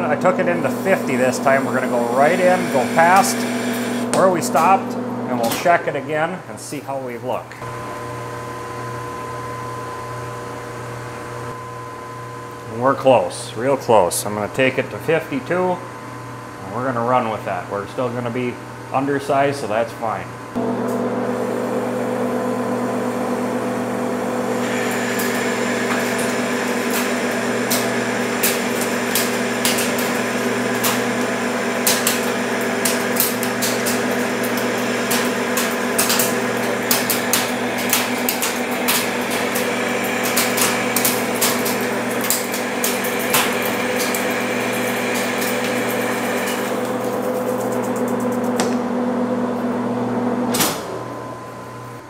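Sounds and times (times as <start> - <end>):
lathe humming: 0.0 - 6.6, 20.5 - 52.0
high cutting whine: 0.0 - 7.0.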